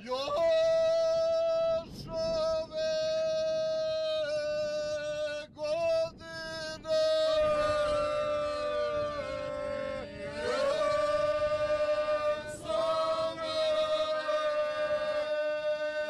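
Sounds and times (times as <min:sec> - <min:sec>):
low vocal drone: 0:00.0 - 0:16.0.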